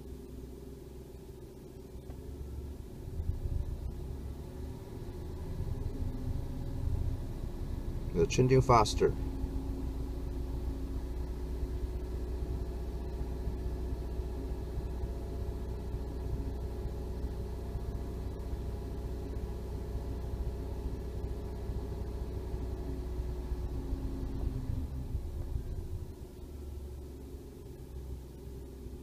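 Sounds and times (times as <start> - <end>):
car engine running at raised revs: 0.0 - 29.0.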